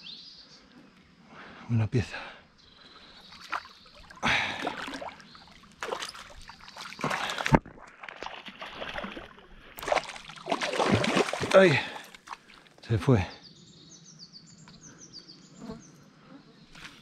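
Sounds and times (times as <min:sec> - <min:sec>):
fish thrashing and splashing: 0:03.3 - 0:12.6.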